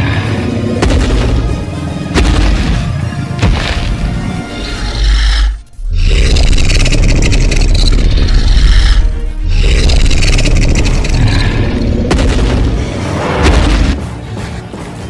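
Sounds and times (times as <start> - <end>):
dramatic soundtrack with booming hits: 0.0 - 15.0
dinosaur roar: 4.5 - 12.2.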